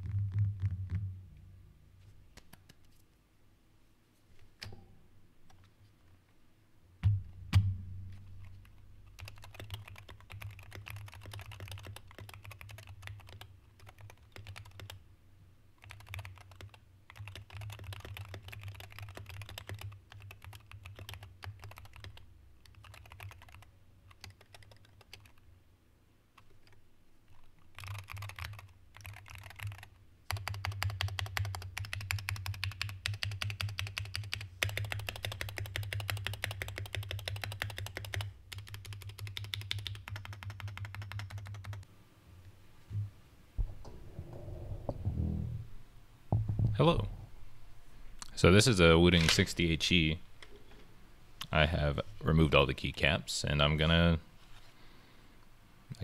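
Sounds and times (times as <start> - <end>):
keyboard typing: 9.2 - 15.0, 15.8 - 25.4, 26.4 - 41.8
heavier knocks: 43.0 - 45.7, 46.3 - 47.3.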